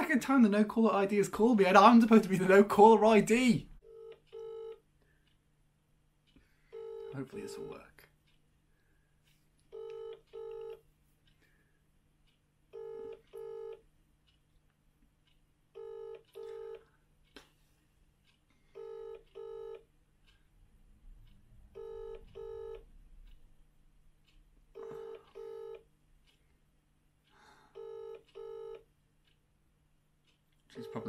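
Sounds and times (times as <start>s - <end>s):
phone ringback tone: 3.8s - 4.8s, 6.7s - 7.2s, 9.7s - 10.8s, 12.8s - 13.8s, 15.8s - 16.8s, 18.8s - 19.8s, 21.8s - 22.8s, 24.8s - 25.8s, 27.8s - 28.8s.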